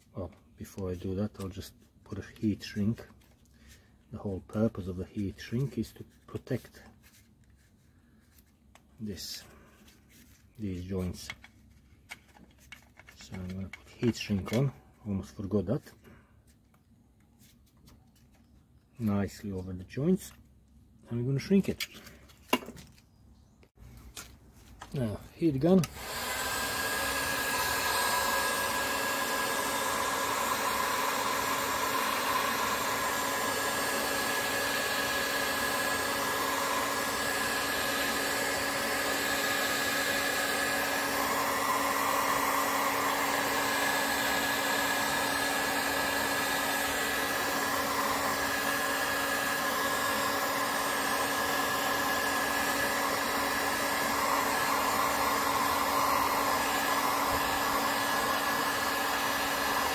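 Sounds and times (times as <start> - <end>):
heat gun blowing air: 25.0 - 59.9.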